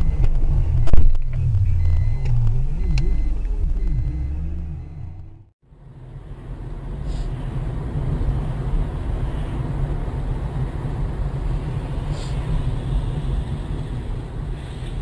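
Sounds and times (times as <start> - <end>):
car engine rumble: 0.0 - 15.0
road noise: 0.0 - 15.0.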